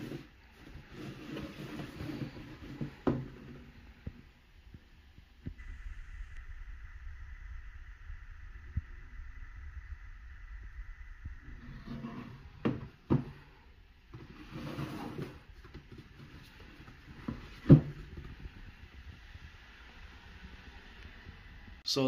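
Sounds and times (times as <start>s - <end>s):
cardboard scraping rustle: 0.0s - 3.8s, 14.1s - 18.7s.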